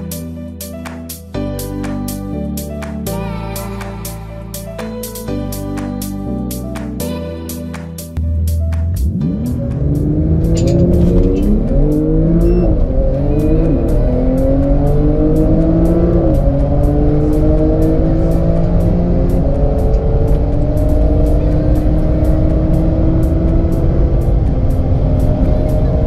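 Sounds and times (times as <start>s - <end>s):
car engines accelerating: 8.2s - 26.0s.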